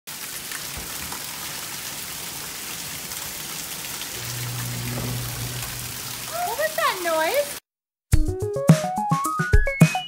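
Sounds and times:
heavy rain on grass: 0.1s - 7.6s
rain splashing into puddles: 0.1s - 7.6s.

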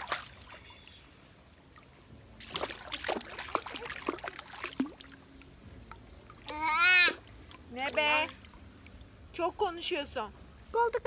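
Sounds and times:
small splashes in pool water: 0.0s - 1.0s, 1.7s - 9.1s.

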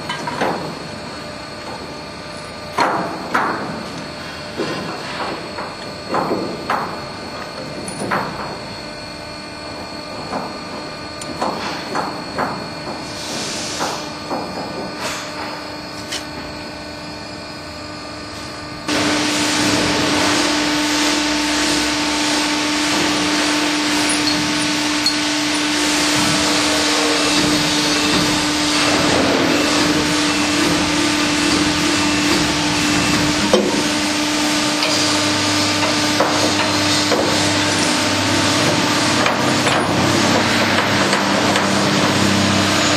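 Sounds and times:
machine humming and hissing: 0.0s - 42.9s
metal clanks and knocks: 23.8s - 29.9s.

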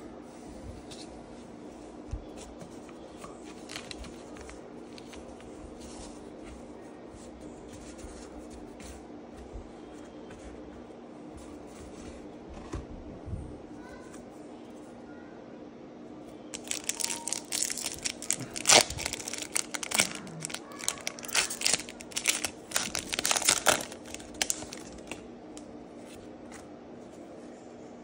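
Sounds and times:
foil pack crinkling and tearing: 3.5s - 5.2s, 16.5s - 25.2s.

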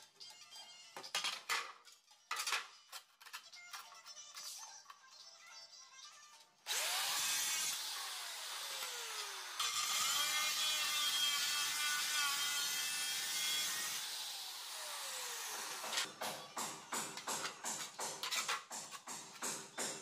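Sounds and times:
tile cutter motor whining: 6.7s - 16.1s.

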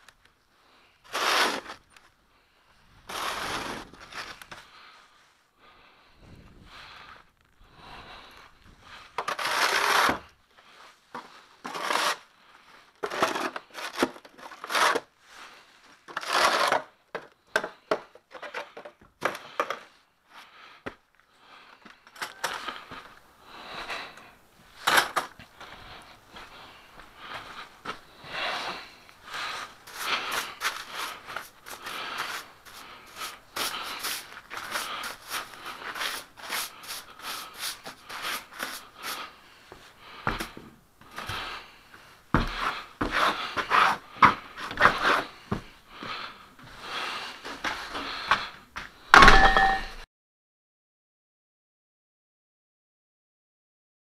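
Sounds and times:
broom sweeping snow: 1.1s - 1.8s, 3.1s - 4.4s, 29.4s - 39.4s.

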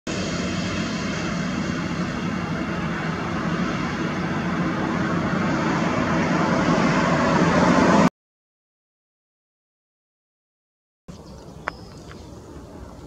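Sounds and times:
jet engines at takeoff thrust: 0.1s - 8.1s, 11.4s - 13.0s.

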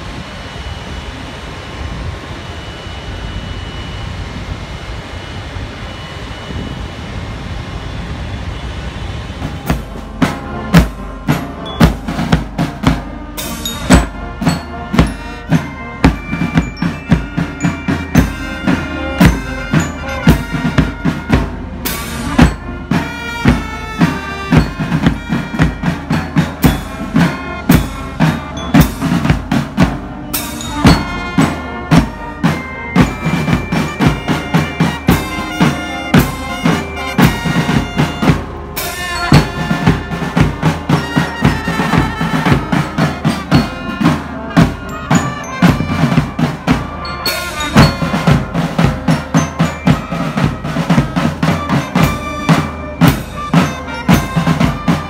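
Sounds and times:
marching band playing: 8.6s - 55.0s
bass and snare drums beat: 9.4s - 55.0s.

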